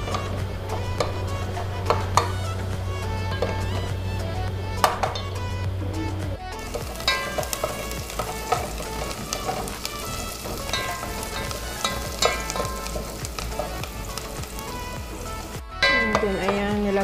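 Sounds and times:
onions sizzling in oil: 0:00.0 - 0:05.4, 0:06.6 - 0:17.0
wooden spoon scraping a pot: 0:06.7 - 0:16.6.

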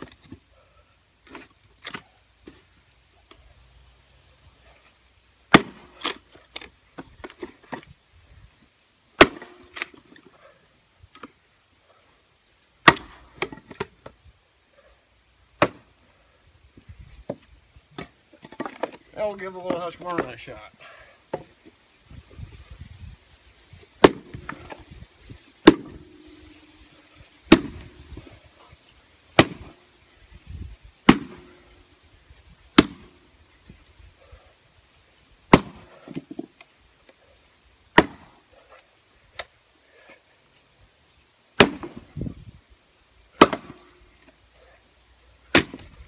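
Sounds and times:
axe striking wood: 0:05.5 - 0:06.7, 0:09.2 - 0:10.0, 0:12.8 - 0:13.8, 0:15.6 - 0:15.9, 0:24.0 - 0:24.8, 0:25.6 - 0:26.6, 0:27.5 - 0:28.2, 0:29.4 - 0:29.8, 0:31.0 - 0:31.6, 0:32.8 - 0:33.2, 0:35.5 - 0:36.4, 0:38.0 - 0:38.3, 0:41.6 - 0:42.1, 0:43.4 - 0:43.9, 0:45.5 - 0:46.0
short ring after blows: 0:25.7 - 0:28.1.

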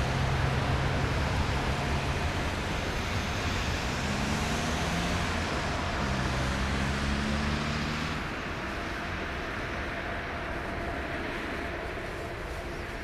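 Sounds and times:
jet engine deep rumble: 0:00.0 - 0:06.0.

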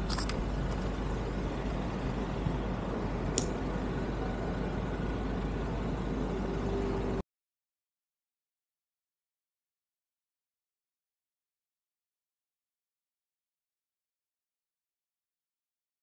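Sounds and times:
traffic rumble: 0:00.0 - 0:07.2.

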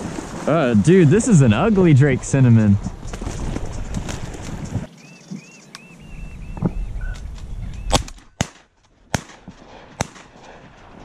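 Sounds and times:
shotgun blasts: 0:07.9 - 0:10.4.

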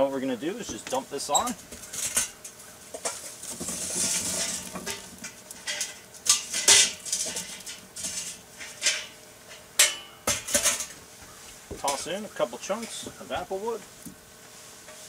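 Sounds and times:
clatter of tumbling coals: 0:00.0 - 0:15.0
sharp metallic clanks: 0:09.8 - 0:11.0.

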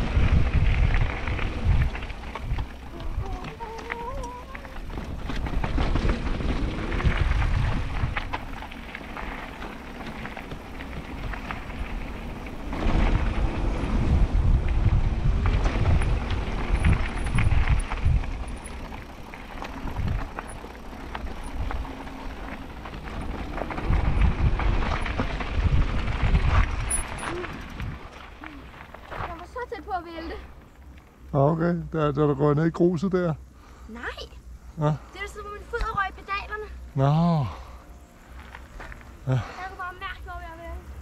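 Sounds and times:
wind buffeting microphone: 0:00.0 - 0:29.8
tyres crunching on gravel: 0:00.0 - 0:31.3, 0:35.3 - 0:40.8
bike rattling over bumps: 0:00.0 - 0:31.6.

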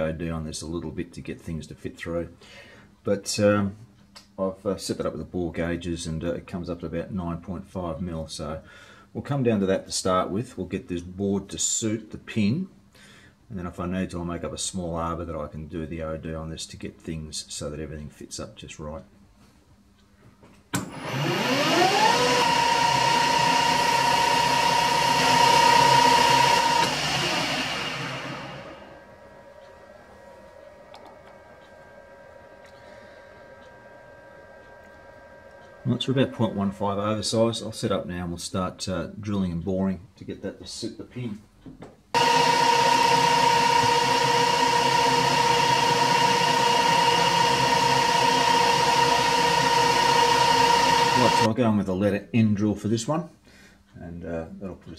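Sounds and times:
drill cutting into metal: 0:20.8 - 0:29.0, 0:42.2 - 0:51.5
lathe spindle whine: 0:20.8 - 0:36.7, 0:42.2 - 0:51.5.

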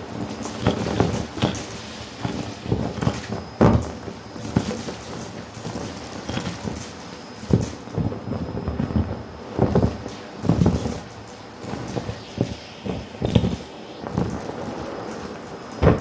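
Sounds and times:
plastic bits clattering up vacuum wand: 0:00.1 - 0:08.9, 0:09.6 - 0:16.0
vacuum cleaner running: 0:10.4 - 0:16.0.

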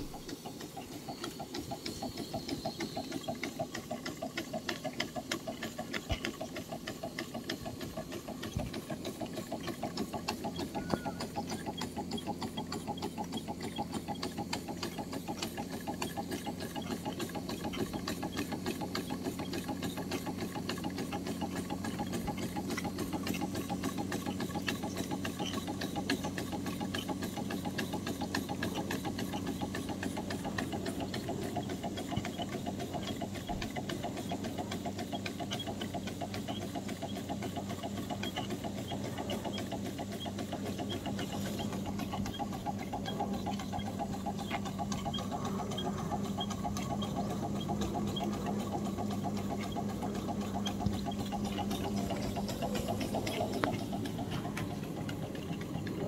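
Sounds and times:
steam engines clattering: 0:00.0 - 0:56.0
low hum: 0:40.8 - 0:56.0.

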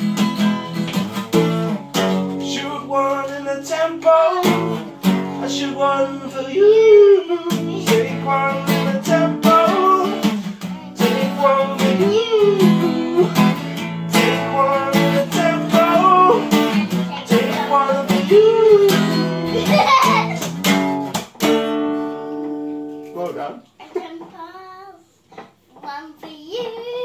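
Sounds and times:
acoustic guitar strummed: 0:00.0 - 0:23.4
child singing wordless vocals: 0:05.3 - 0:10.2, 0:11.0 - 0:13.4, 0:14.1 - 0:20.4, 0:23.9 - 0:27.0.

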